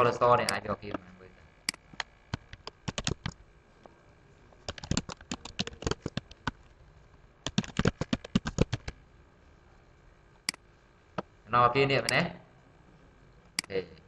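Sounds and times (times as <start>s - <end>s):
computer keyboard typing: 1.7s - 3.4s, 4.6s - 6.7s, 7.4s - 9.0s.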